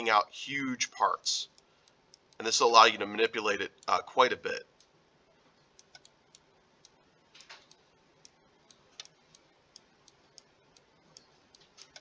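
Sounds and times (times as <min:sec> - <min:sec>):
faint computer mouse clicks: 0:05.8 - 0:12.0.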